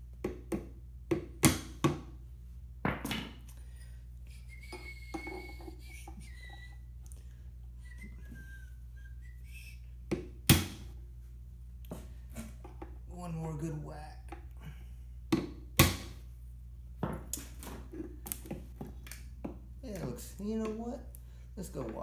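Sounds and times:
faint whistled notes: 0:04.3 - 0:06.9, 0:07.8 - 0:09.9.

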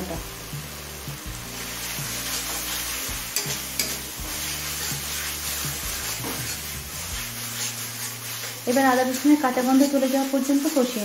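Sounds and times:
paste sizzling in oil: 0:00.0 - 0:11.0
spatula scraping metal pan: 0:02.2 - 0:11.0.

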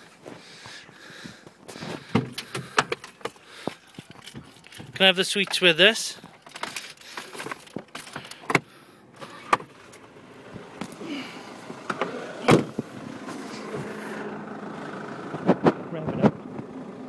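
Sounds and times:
vehicle door opening and shutting: 0:01.8 - 0:05.6, 0:06.2 - 0:14.2
diesel engine idling: 0:09.8 - 0:17.0.

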